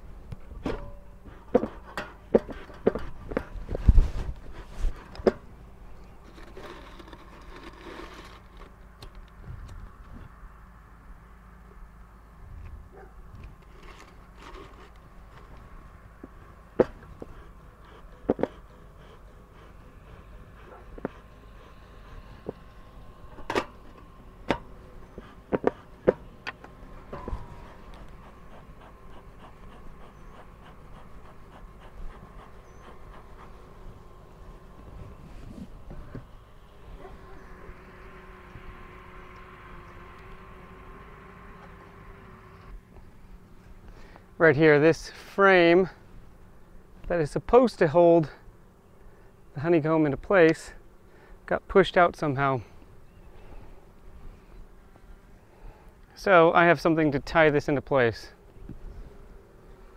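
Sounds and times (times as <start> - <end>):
honeybees humming: 0.0 - 59.9.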